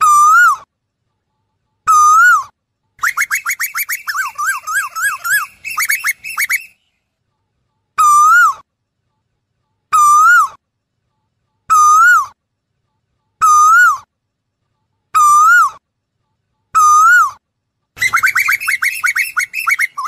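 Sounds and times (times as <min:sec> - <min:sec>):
koel calling: 0:03.0 - 0:06.7, 0:18.0 - 0:20.0.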